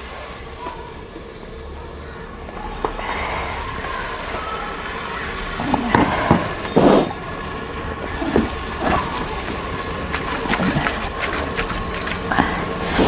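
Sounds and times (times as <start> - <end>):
fire burning with rushing sound: 2.6 - 13.0.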